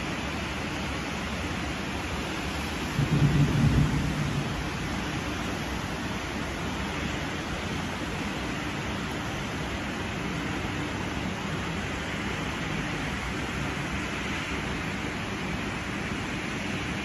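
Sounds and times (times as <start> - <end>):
heavy rain hiss: 0.0 - 17.0
low thunder rumble: 2.7 - 8.6.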